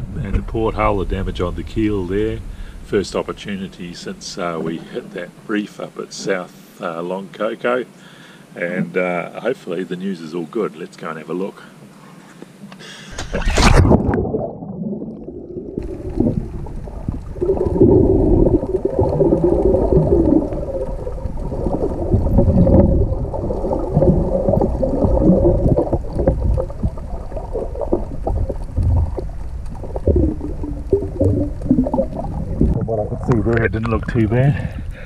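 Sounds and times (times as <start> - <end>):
muffled underwater gurgling and bubbling: 0.0 - 5.5, 13.2 - 35.0.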